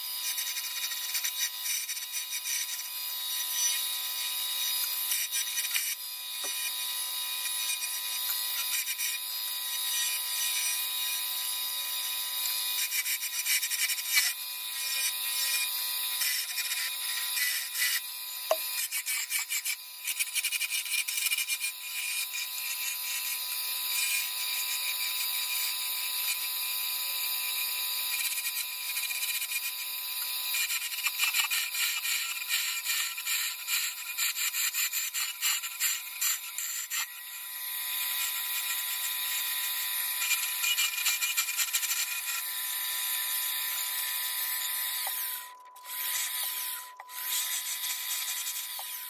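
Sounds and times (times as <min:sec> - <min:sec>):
wood lathe turning tool cutting: 0:12.4 - 0:19.7, 0:30.6 - 0:49.0.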